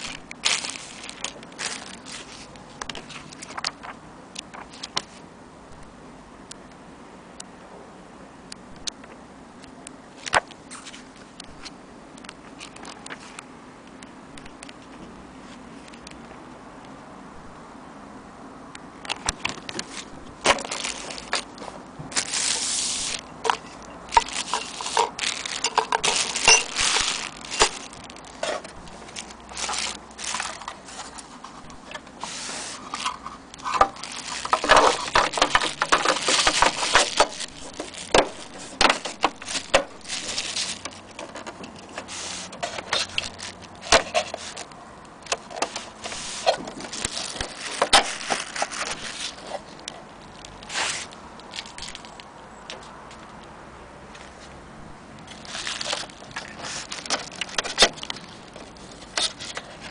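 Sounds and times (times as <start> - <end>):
plastic bags crinkling: 0.0 - 5.2, 19.1 - 53.4, 55.2 - 59.9.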